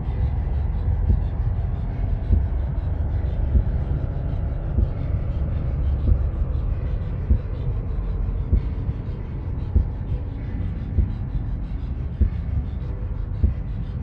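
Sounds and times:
deep heartbeat thumps: 0:00.0 - 0:14.0
low rumbling drone: 0:00.0 - 0:14.0.

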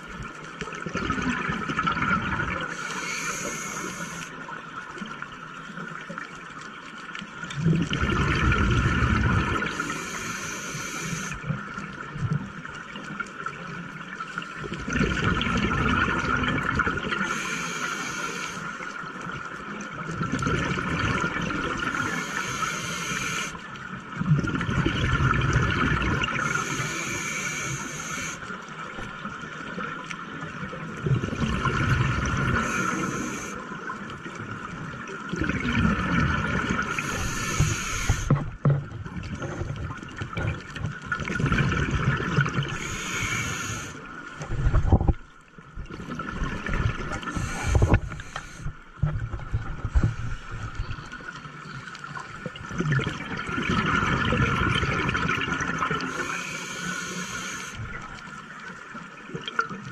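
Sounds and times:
exhaled bubbles rumbling: 0:00.0 - 0:02.8, 0:07.4 - 0:10.0, 0:14.6 - 0:17.3, 0:19.9 - 0:22.2, 0:24.0 - 0:26.8, 0:28.9 - 0:32.9, 0:33.6 - 0:56.2
regulator inhale hiss: 0:02.7 - 0:04.5, 0:09.6 - 0:11.5, 0:17.2 - 0:19.0, 0:21.9 - 0:23.6, 0:26.4 - 0:28.6, 0:32.4 - 0:33.8, 0:36.8 - 0:38.4, 0:42.7 - 0:44.1, 0:47.2 - 0:49.0, 0:56.0 - 0:57.9.

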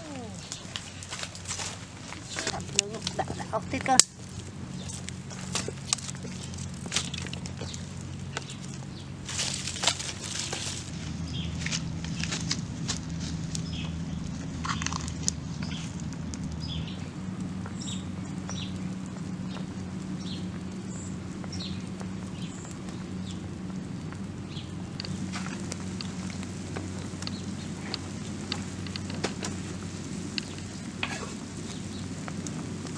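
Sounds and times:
crackles of burning wood: 0:00.0 - 0:32.9.

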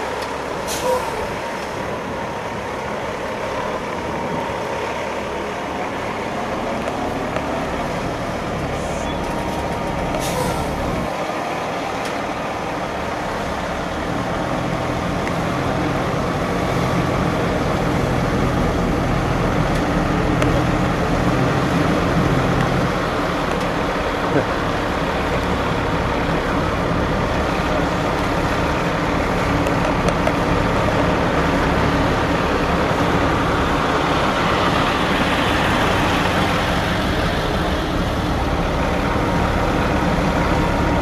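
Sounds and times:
truck diesel engine rumbling: 0:00.0 - 0:41.0.

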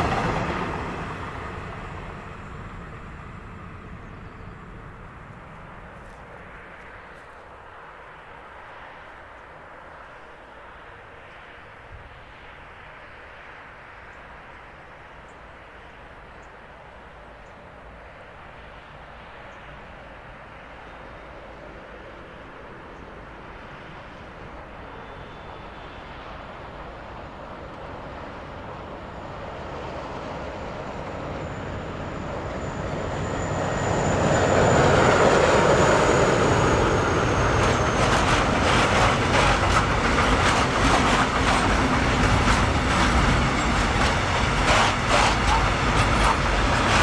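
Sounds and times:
freight train passing: 0:00.0 - 0:47.0
wheels clacking over rails: 0:36.4 - 0:47.0.

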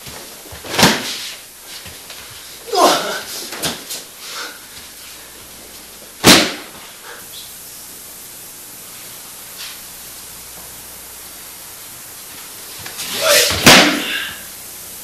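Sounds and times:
body slapping onto mat: 0:00.0 - 0:02.3, 0:02.9 - 0:04.0, 0:06.2 - 0:06.9, 0:12.8 - 0:14.3
steady hiss: 0:00.0 - 0:15.0.

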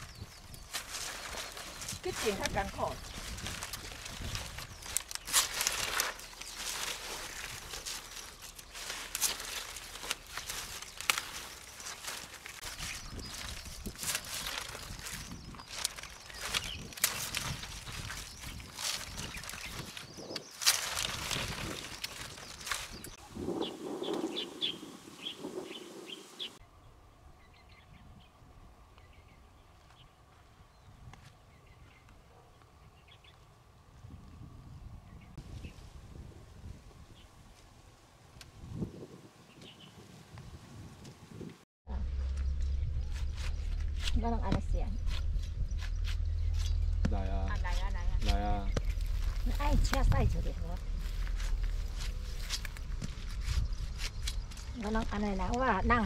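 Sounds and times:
dry leaves rustling and crunching: 0:00.0 - 0:25.4, 0:42.0 - 0:56.0
sharp crackles: 0:00.0 - 0:26.6, 0:41.9 - 0:56.0
small birds chirping: 0:00.0 - 0:35.8, 0:39.5 - 0:40.0, 0:42.2 - 0:56.0
low steady rumble: 0:41.9 - 0:56.0.

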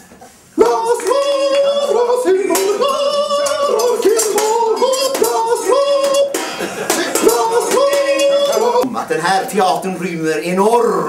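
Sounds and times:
high-pitched singing: 0:00.6 - 0:06.4, 0:07.0 - 0:08.9.

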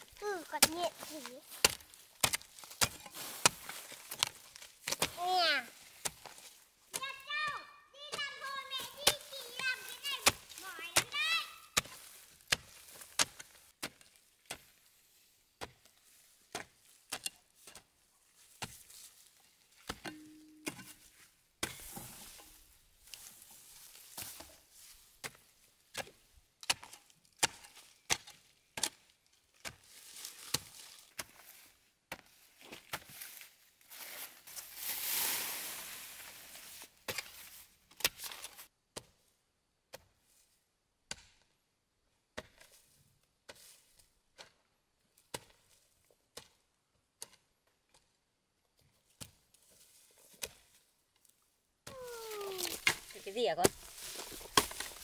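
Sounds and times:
hoe chopping into soil: 0:00.5 - 0:05.3, 0:11.8 - 0:14.8, 0:25.2 - 0:31.4, 0:51.9 - 0:55.0.

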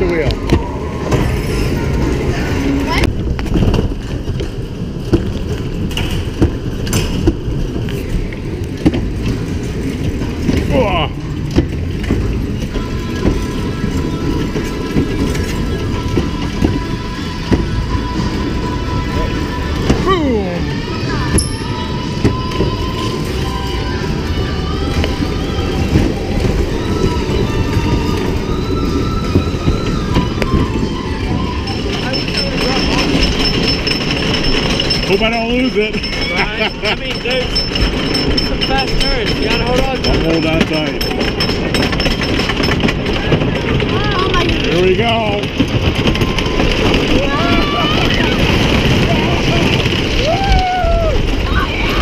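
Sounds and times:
bumper car rumbling: 0:00.0 - 0:52.0
bumper car knocks: 0:08.7 - 0:18.4.

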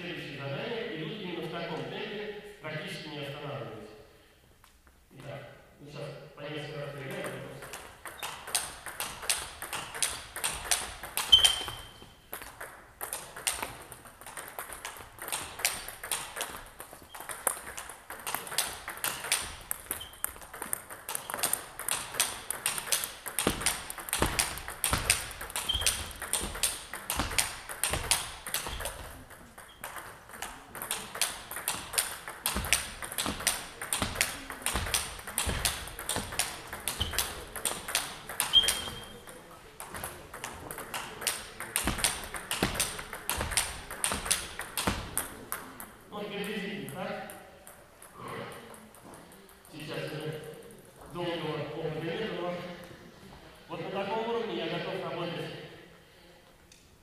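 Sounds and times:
table tennis ball clicking: 0:07.1 - 0:50.7.

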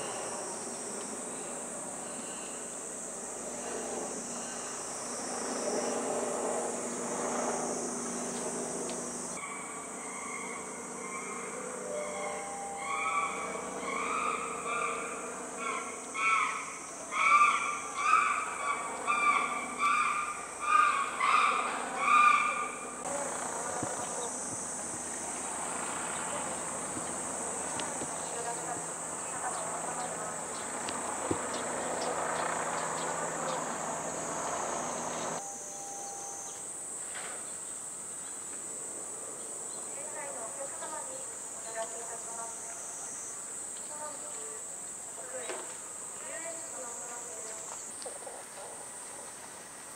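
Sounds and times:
high-pitched insect drone: 0:00.0 - 0:48.0
even hiss with faint ticks: 0:08.3 - 0:09.4, 0:26.1 - 0:28.9
short repeated pitched calls: 0:09.4 - 0:23.0.

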